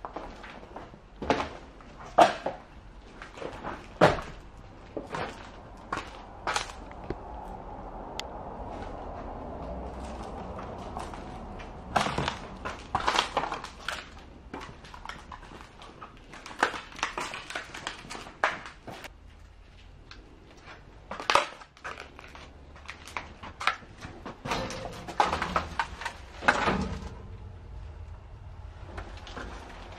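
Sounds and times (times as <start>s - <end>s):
footsteps crunching over debris: 0.0s - 7.1s, 8.6s - 27.1s.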